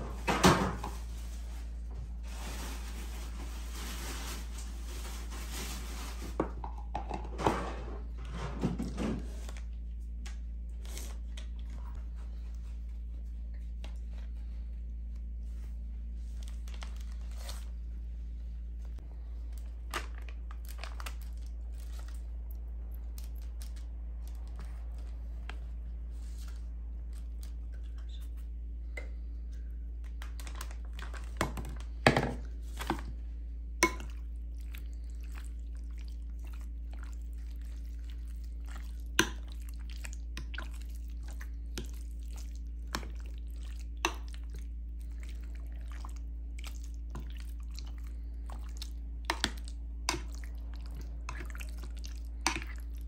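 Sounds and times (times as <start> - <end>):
wet squishing: 18.9 - 28.6, 29.9 - 53.0.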